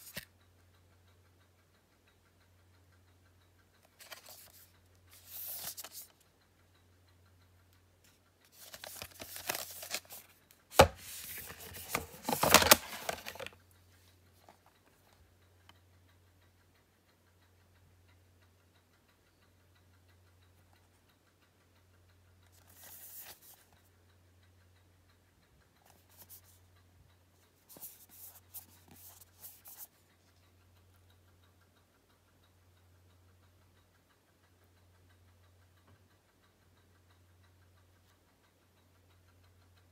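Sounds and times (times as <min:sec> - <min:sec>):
plastic cases rustling and scraping: 0:10.8 - 0:13.5.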